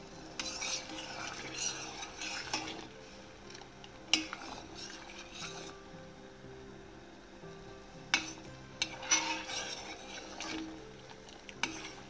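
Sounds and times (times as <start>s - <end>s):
syrup bubbling: 0.0s - 12.0s
ladle stirring syrup in saucepan: 0.1s - 5.7s, 8.0s - 12.0s.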